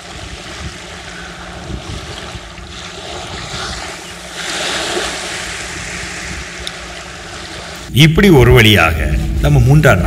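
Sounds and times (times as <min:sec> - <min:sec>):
small waves washing onto shore: 0:00.0 - 0:07.9
wind buffeting microphone: 0:00.0 - 0:07.9.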